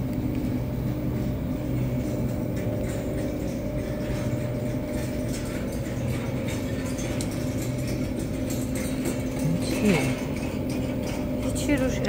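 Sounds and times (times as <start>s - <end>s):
low machinery hum: 0.0s - 12.0s
light clicks and rattles: 1.7s - 12.0s.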